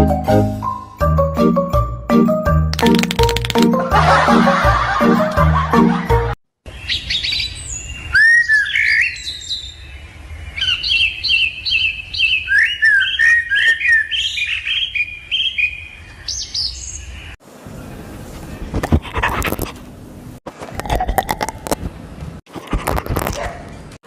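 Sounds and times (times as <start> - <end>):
lovebirds chirping: 6.7 - 17.4.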